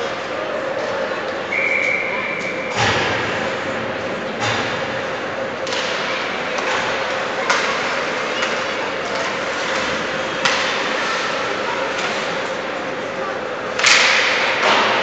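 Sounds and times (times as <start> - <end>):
hockey sticks cracking on puck: 5.6 - 12.6, 13.7 - 15.0.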